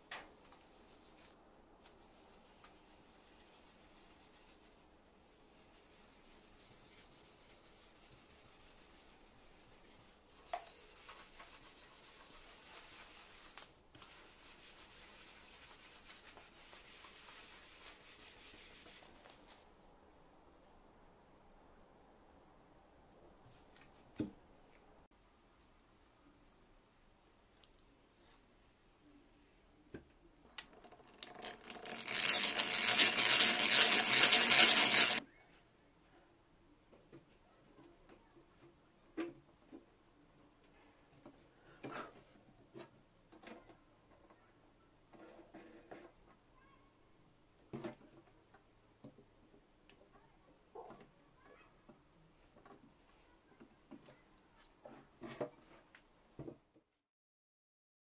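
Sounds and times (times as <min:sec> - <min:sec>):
paper towel rubbing on wood: 0:02.0 - 0:19.6
hand drill boring into wood: 0:31.1 - 0:35.2.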